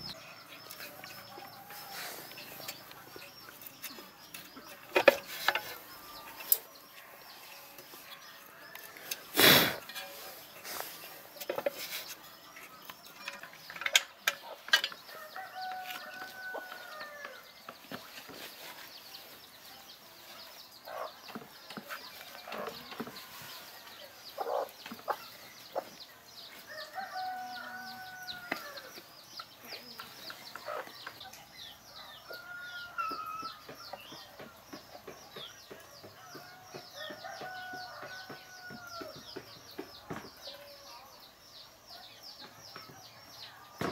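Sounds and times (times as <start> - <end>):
rooster crowing: 15.1 - 17.4, 26.7 - 28.9.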